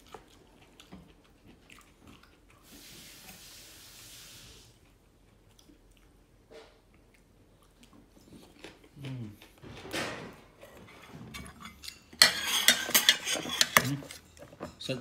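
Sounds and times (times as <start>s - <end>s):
metal spoon scraping a dish: 10.6s - 14.9s.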